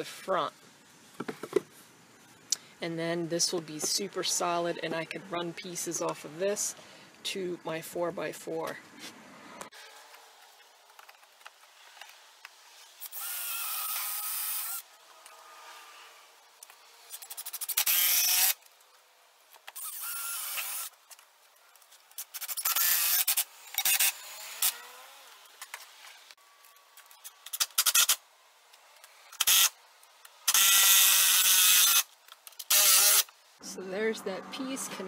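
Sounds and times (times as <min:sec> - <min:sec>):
impact driver driving screws: 0:17.1 - 0:18.6, 0:27.4 - 0:28.2, 0:29.3 - 0:29.7, 0:30.5 - 0:33.3.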